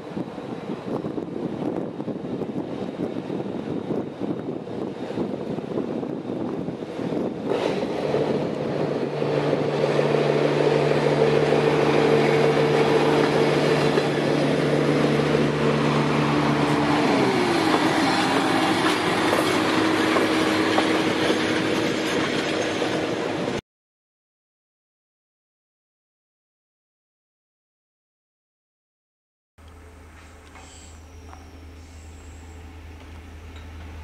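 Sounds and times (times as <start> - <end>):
diesel railcar engine drone: 0.0 - 23.6, 29.6 - 34.0.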